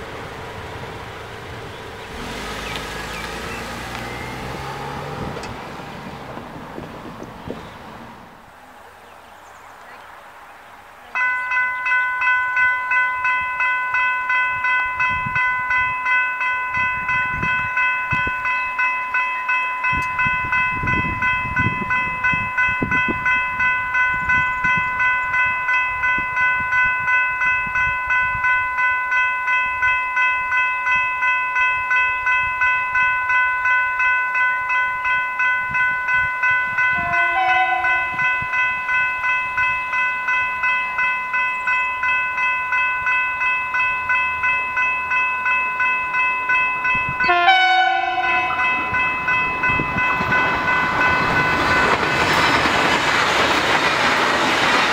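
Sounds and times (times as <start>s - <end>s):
electronic level crossing bells: 11.2s - 52.5s.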